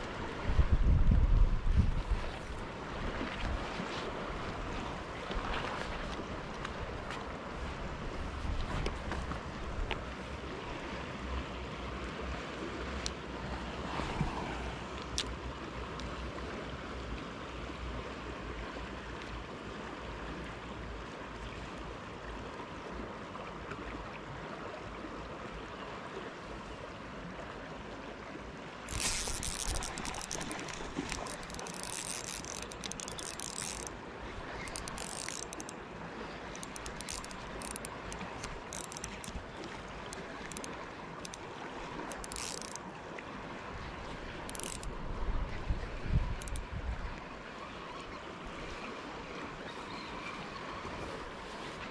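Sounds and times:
river running over stones: 0:00.0 - 0:51.9
fishing reel winding: 0:28.9 - 0:35.8, 0:36.5 - 0:41.4, 0:42.1 - 0:42.8, 0:44.4 - 0:44.9, 0:46.4 - 0:46.6.

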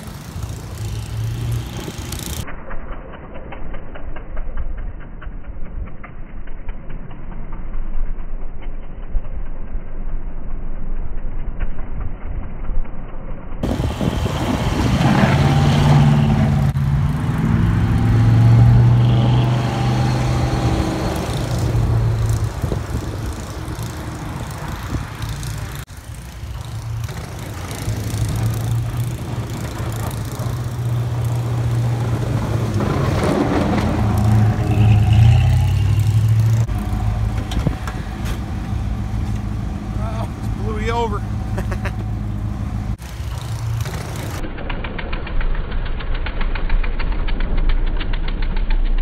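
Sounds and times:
truck engine running: 0:13.6 - 0:49.0.

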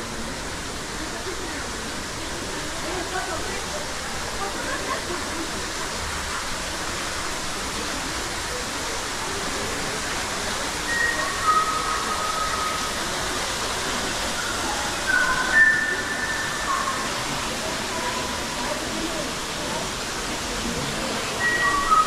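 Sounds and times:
rush of falling water: 0:00.0 - 0:22.0
short whistled notes: 0:10.9 - 0:13.1, 0:14.4 - 0:17.4, 0:21.4 - 0:22.0.

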